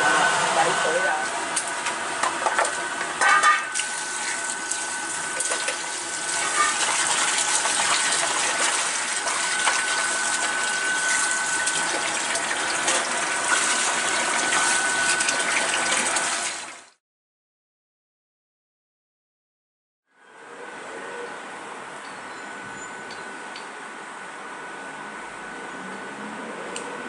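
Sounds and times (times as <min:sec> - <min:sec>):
tap running into basin: 0:02.2 - 0:16.8.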